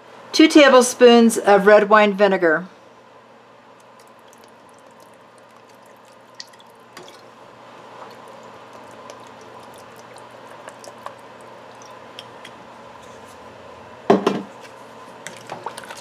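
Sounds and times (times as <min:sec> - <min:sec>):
liquid dripping into pot: 0:03.8 - 0:12.6.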